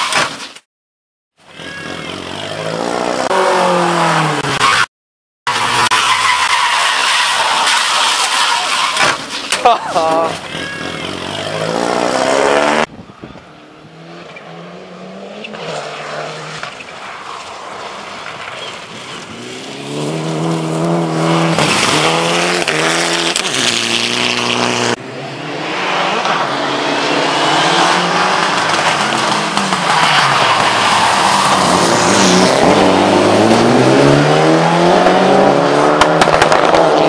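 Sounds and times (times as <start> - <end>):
rally car engines accelerating: 18.2 - 37.0.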